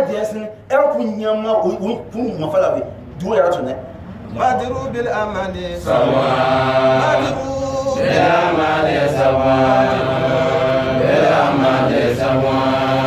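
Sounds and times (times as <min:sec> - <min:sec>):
men chanting in unison: 0:05.6 - 0:13.0.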